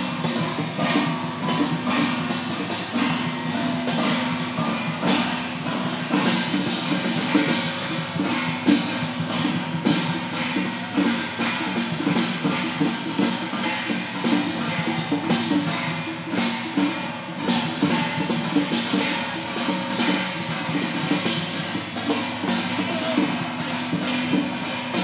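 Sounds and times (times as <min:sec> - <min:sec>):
cymbals clashing: 0:00.0 - 0:25.0
drums beating: 0:00.0 - 0:25.0.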